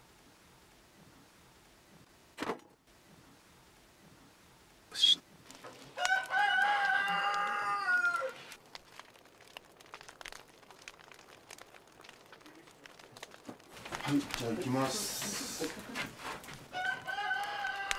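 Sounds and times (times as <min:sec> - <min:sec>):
wood fire crackling: 0:00.0 - 0:17.9
rooster crowing: 0:06.0 - 0:08.4, 0:16.7 - 0:17.9.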